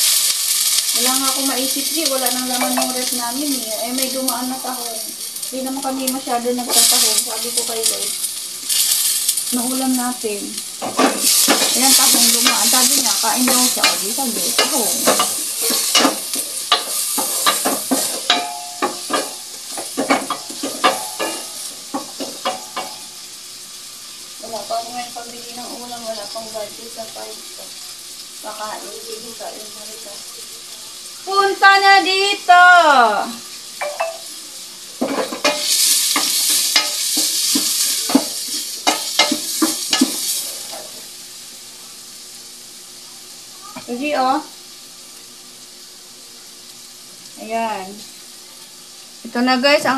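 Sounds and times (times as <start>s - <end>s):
vegetables sizzling in a pot: 0.0s - 49.9s
spatula knocking and scraping pot: 13.4s - 23.0s, 35.0s - 40.8s.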